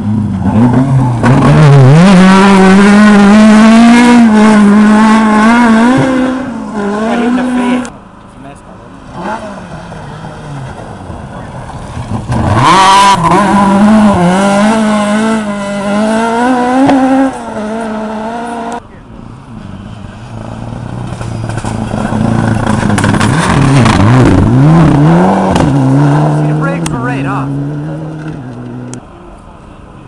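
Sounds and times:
rally car engine passing: 0.0 - 8.0, 9.0 - 29.3
second car engine revving: 0.0 - 8.0, 9.0 - 29.2.

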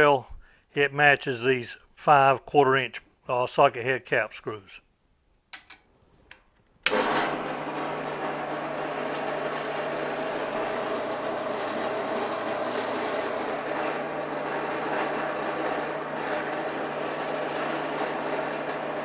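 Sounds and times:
drill press motor humming: 6.9 - 19.0.

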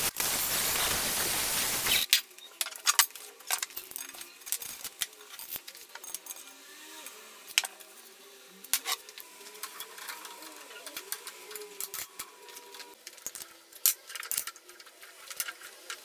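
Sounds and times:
angle grinder on steel: 6.2 - 13.0.

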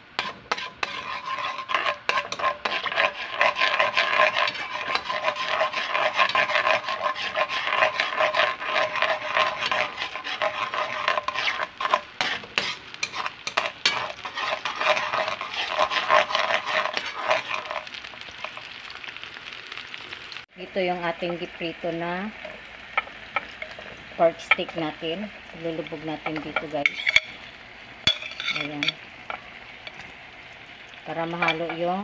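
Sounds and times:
spatula scraping a wok: 0.0 - 18.8, 25.7 - 30.2, 31.2 - 32.0
sauce sizzling: 0.0 - 32.0.

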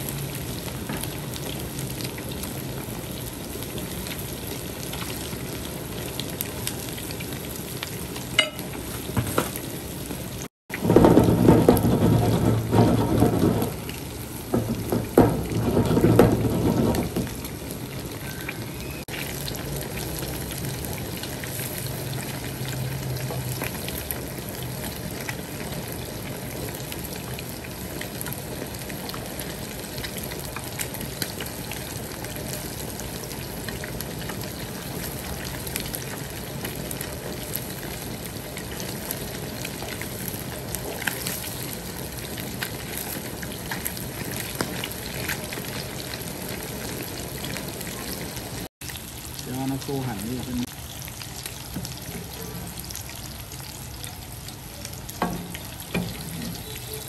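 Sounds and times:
fish sizzling in hot oil: 0.0 - 57.0
rumble with sharp knocks: 10.7 - 17.5.

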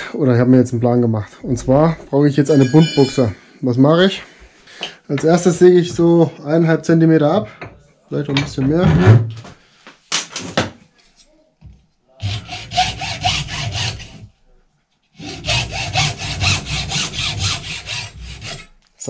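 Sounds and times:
hacksaw strokes: 12.2 - 14.3, 15.2 - 18.8.

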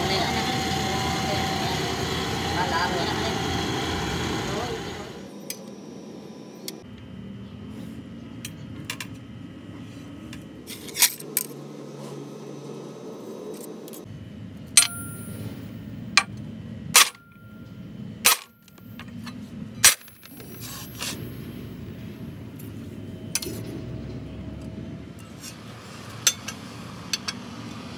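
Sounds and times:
metallic clanks and clinks: 14.8 - 15.7.

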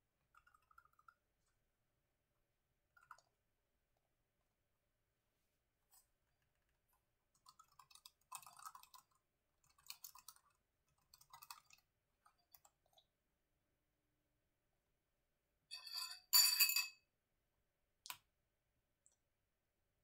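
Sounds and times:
typing on computer keyboard: 7.4 - 11.8.

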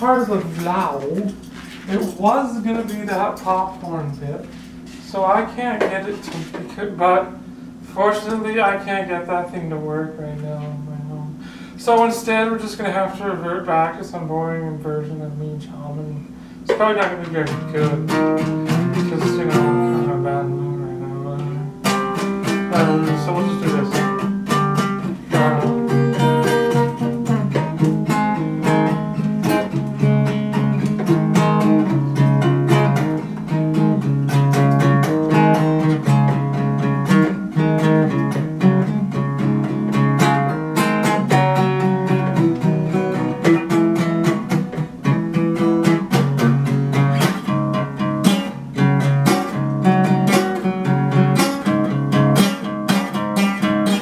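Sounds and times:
solo acoustic guitar: 16.2 - 54.0.

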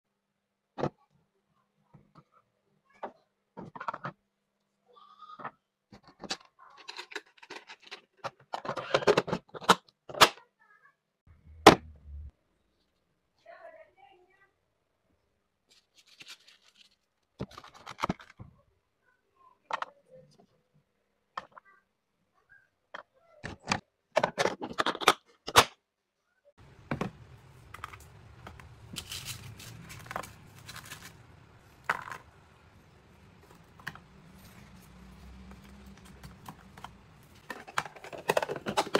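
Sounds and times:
plastic lunch box clicks and rattles: 23.4 - 25.7, 35.6 - 38.9.

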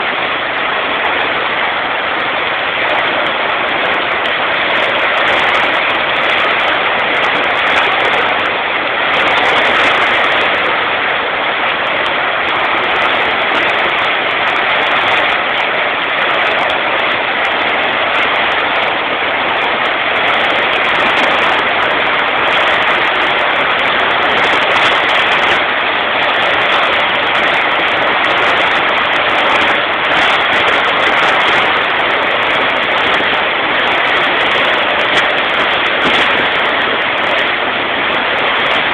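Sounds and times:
heavy rain pouring: 0.0 - 38.9.

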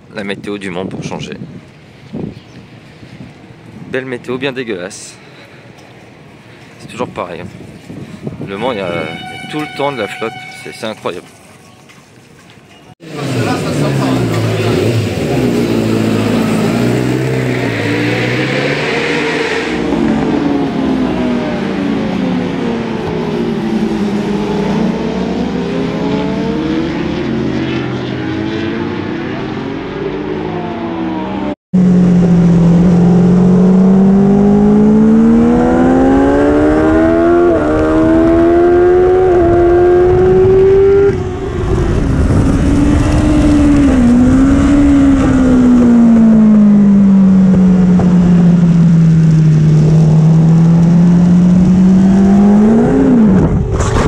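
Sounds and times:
racing motorcycle engines: 13.0 - 54.0.

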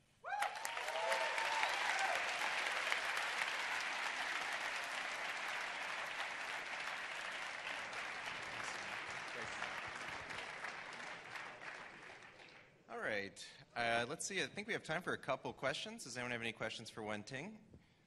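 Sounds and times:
audience applauding: 0.3 - 12.7.

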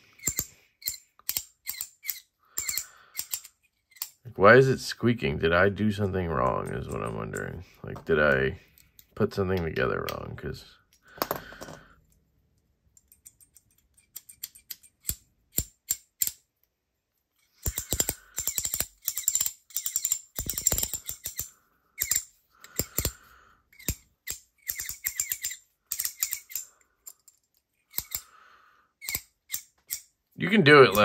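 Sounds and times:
ratchet clicking: 0.2 - 4.2, 17.6 - 23.2, 23.8 - 27.2, 27.9 - 28.3.

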